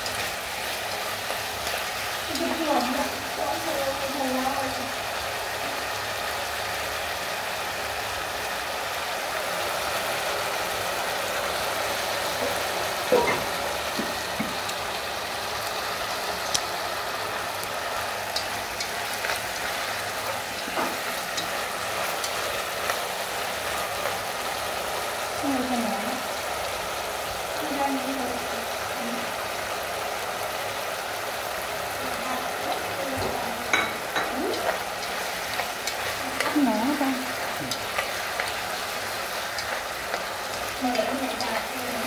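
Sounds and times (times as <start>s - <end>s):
vegetables sizzling in a wok: 0.0s - 42.0s
chopsticks clicking against pan: 18.3s - 25.0s, 34.0s - 41.8s.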